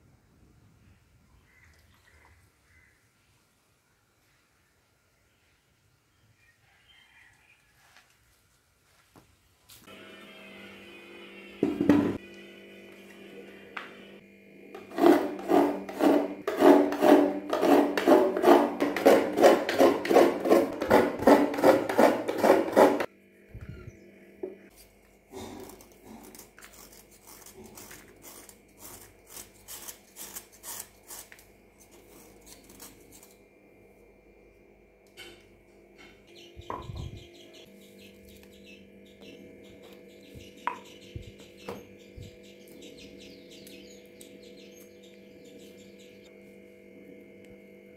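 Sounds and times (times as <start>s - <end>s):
rhythmic rasping strokes: 9.9s - 23.1s
knife scraping jaggery: 14.8s - 23.1s, 24.7s - 33.4s.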